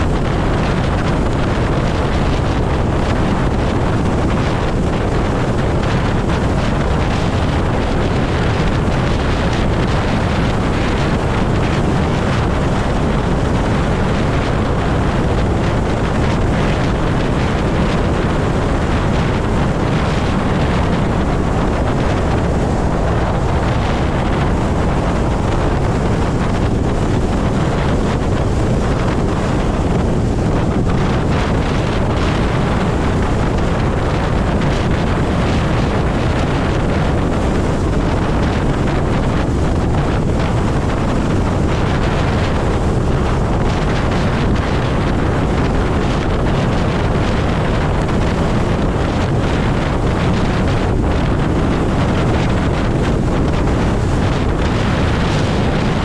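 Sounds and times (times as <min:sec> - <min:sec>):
road noise: 0:00.0 - 0:56.0
wind buffeting microphone: 0:00.0 - 0:56.0.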